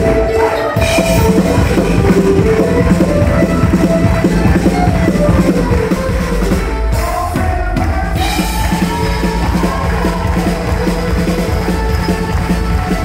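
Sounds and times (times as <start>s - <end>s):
mandolin: 0.0s - 6.6s
held bending melody line: 0.0s - 7.6s
drum kit beat: 0.0s - 13.0s.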